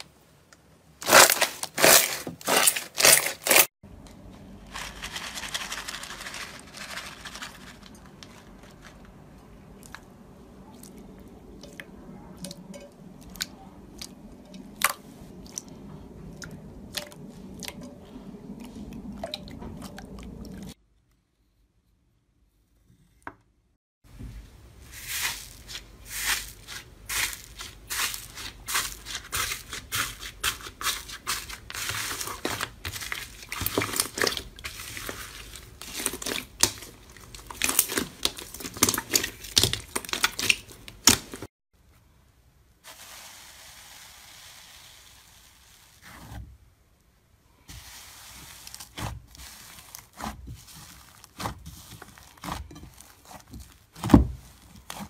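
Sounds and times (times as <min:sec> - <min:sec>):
slime crackling and popping: 0:35.8 - 0:41.4
faint steady hiss: 0:41.8 - 0:49.0.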